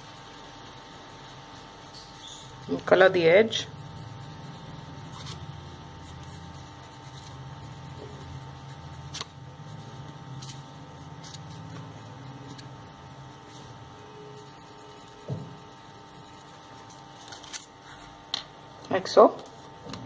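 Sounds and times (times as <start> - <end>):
pencil scratching on paper: 0.0 - 17.0
low steady hum: 0.0 - 20.0.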